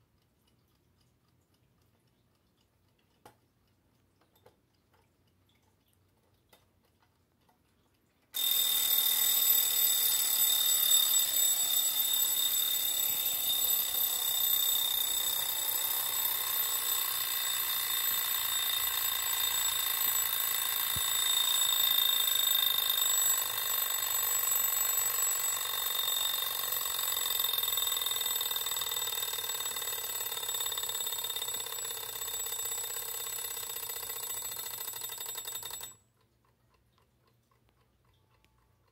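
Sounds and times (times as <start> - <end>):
alarm clock buzzing ring: 8.4 - 36.1.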